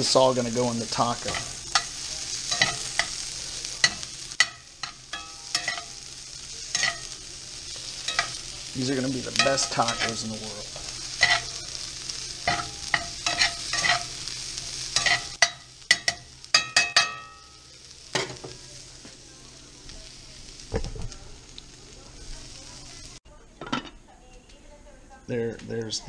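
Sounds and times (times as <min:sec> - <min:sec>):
vegetables sizzling in a skillet: 0:00.0 - 0:23.3
metal utensil scraping a pan: 0:00.8 - 0:11.8, 0:12.4 - 0:17.5.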